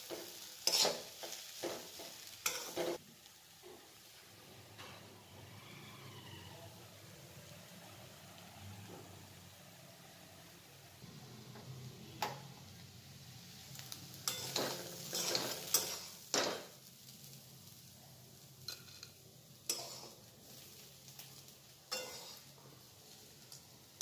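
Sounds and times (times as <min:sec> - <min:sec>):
metal spatula scraping a wok: 0:00.1 - 0:03.0, 0:13.8 - 0:16.8, 0:18.7 - 0:21.3, 0:21.9 - 0:23.7.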